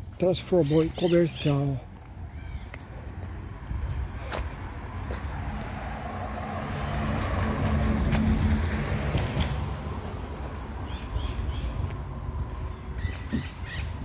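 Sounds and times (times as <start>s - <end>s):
car passing by: 4.8s - 10.7s.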